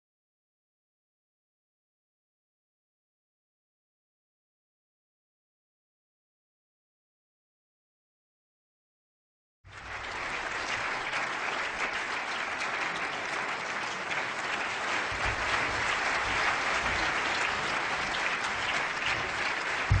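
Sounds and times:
audience applauding: 0:09.7 - 0:20.0.

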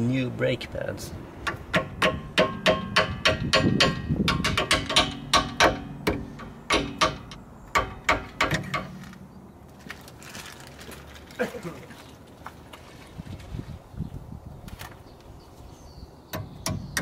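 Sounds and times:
hammer tapping metal punch: 0:01.5 - 0:09.0.

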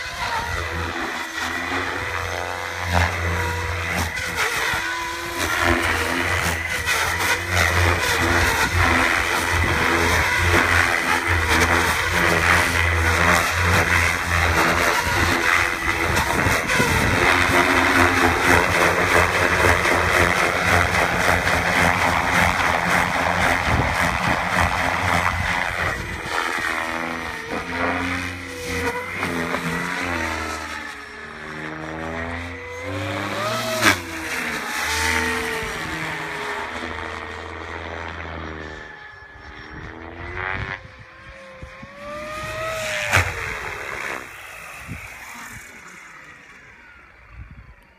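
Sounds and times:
electric motor whine: 0:00.0 - 0:47.9
helicopter rotor chopping: 0:00.0 - 0:47.9.

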